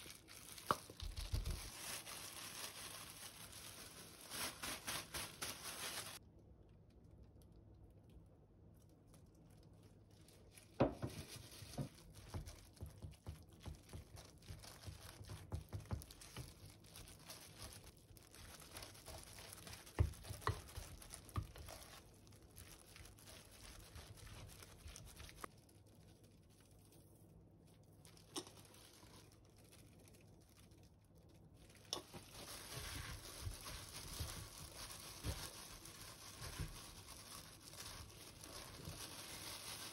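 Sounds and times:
plastic gloves crinkling: 0:00.0 - 0:39.9.

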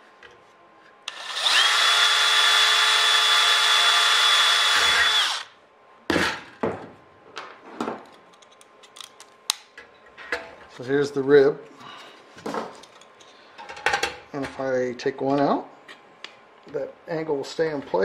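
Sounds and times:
cordless drill whining: 0:01.1 - 0:05.5.

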